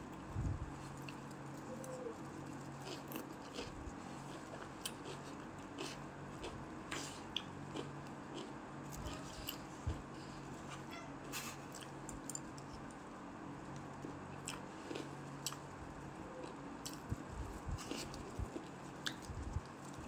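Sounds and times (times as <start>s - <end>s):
steady low hum: 0.0s - 20.0s
person chewing: 2.2s - 9.7s, 14.0s - 15.7s, 16.3s - 19.8s.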